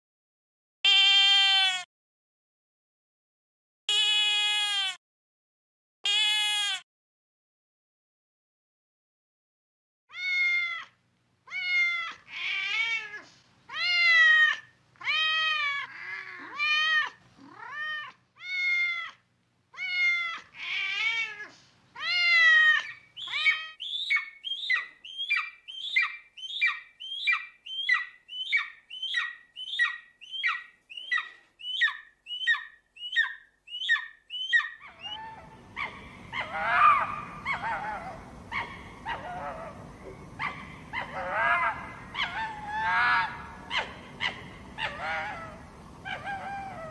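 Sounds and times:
cat meowing: 0.9 - 1.8, 3.9 - 5.0, 6.1 - 6.8, 10.1 - 19.2, 19.8 - 23.8
rough noisy cat cry: 0.9 - 1.8, 3.9 - 5.0, 6.0 - 6.8, 10.1 - 19.2, 19.8 - 23.8, 34.8 - 46.9.

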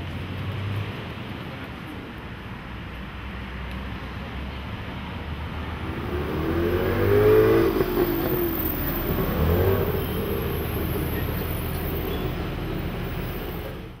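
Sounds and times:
traffic rumble: 0.0 - 14.0
vehicle passing: 5.1 - 14.0
car passing close: 5.2 - 14.0.

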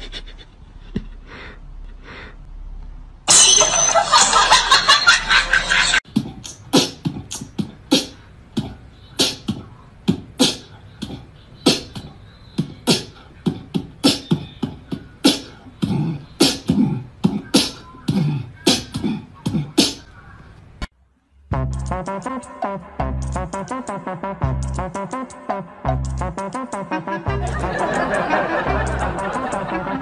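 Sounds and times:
beatbox clicks and pops: 6.2 - 13.1
low hummed notes: 27.2 - 30.0.

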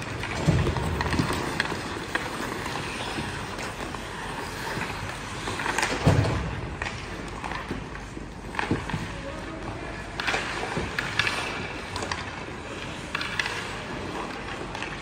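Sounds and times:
skate blades scraping ice: 0.0 - 15.0
sticks and puck clicking: 0.0 - 15.0.

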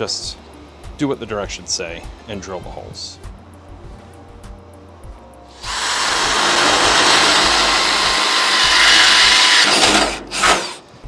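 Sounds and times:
cordless drill grinding through metal: 5.5 - 10.9.

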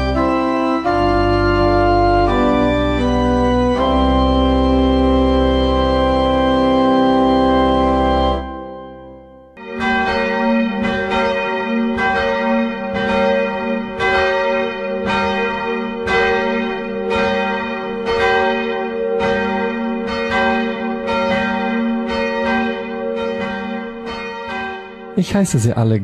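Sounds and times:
church bells pealing: 0.0 - 25.2.

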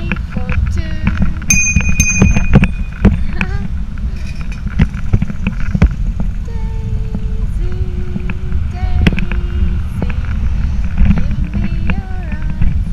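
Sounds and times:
bicycle rumbling and rattling: 0.0 - 12.9
wind buffeting microphone: 0.0 - 12.9
bicycle bell ringing: 1.5 - 3.3.

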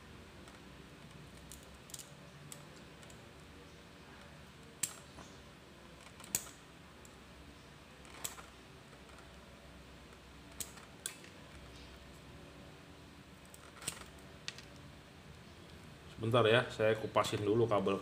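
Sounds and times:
faint low hum: 0.0 - 18.0
clicks and knocks of tools: 10.1 - 11.7.

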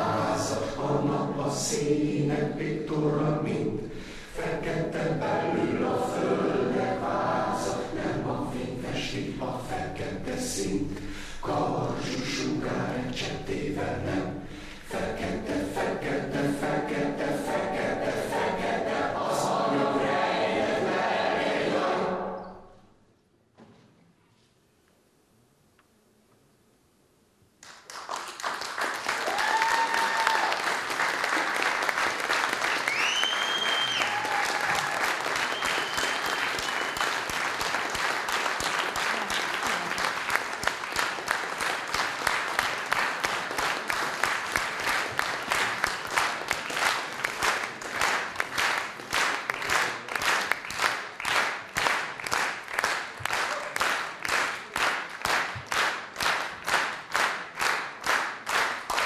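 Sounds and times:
rhythmic unison clapping: 9.2 - 20.0, 27.6 - 59.0
audience applause: 27.6 - 59.0
high-pitched cheers: 29.2 - 30.7, 32.8 - 37.0.

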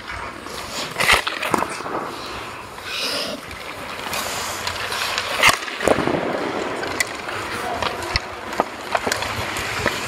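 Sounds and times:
puck impact: 0.0 - 10.0
skates scraping on ice: 0.0 - 10.0.

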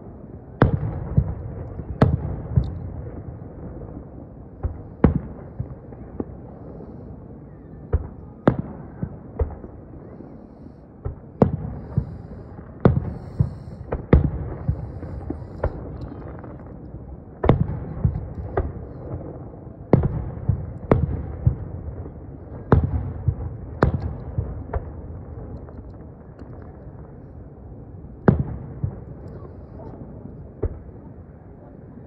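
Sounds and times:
fireworks bursting with booms: 0.0 - 31.6
low rumbling echo: 0.0 - 32.0.

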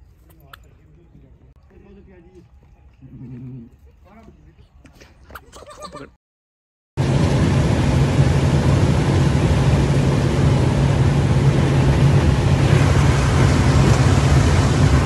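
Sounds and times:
low engine and road hum: 7.0 - 15.0.

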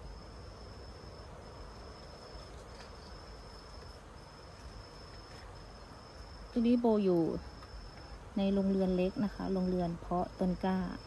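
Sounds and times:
insect trilling: 0.0 - 11.0.

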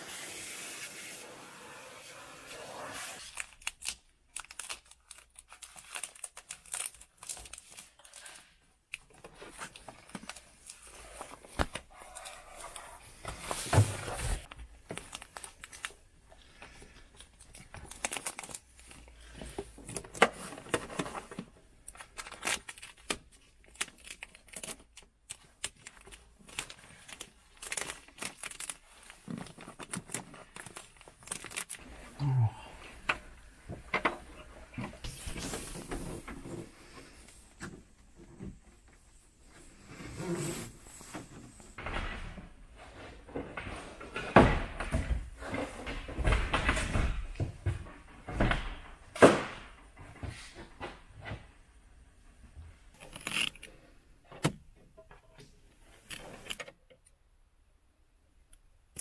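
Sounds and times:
foil insulation crinkling: 3.2 - 8.6, 13.6 - 16.0, 17.2 - 20.1, 21.8 - 31.9.

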